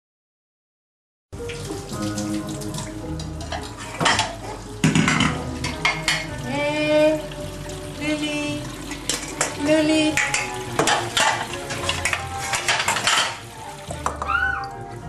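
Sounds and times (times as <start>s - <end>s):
dishes and utensils clinking: 2.1s - 6.5s, 8.9s - 14.8s.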